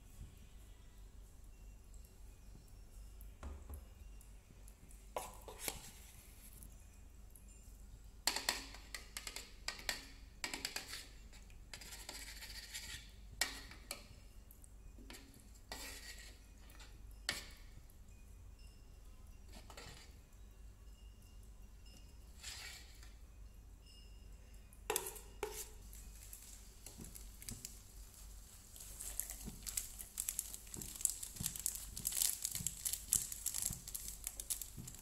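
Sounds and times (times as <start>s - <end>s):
metal spoon stirring in a wok: 8.4s - 14.0s, 15.1s - 17.7s, 22.3s - 23.2s.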